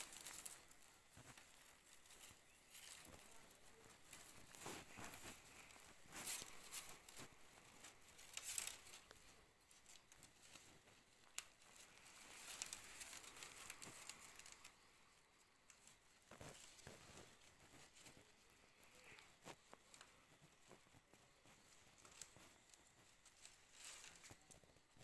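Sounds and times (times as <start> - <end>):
plant strips rustling and clicking: 0.0 - 25.0.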